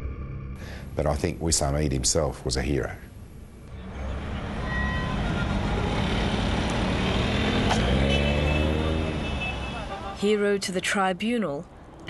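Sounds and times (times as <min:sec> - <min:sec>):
street noise: 0:00.6 - 0:12.0
car and truck engines passing: 0:03.2 - 0:10.6.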